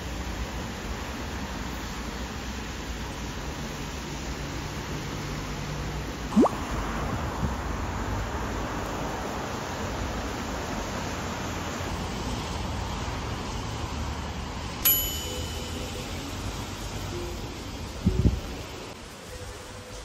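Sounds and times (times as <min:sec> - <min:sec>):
rain on a wet street: 0:00.0 - 0:06.1, 0:07.6 - 0:14.8
bright metallic ding: 0:14.8 - 0:16.6.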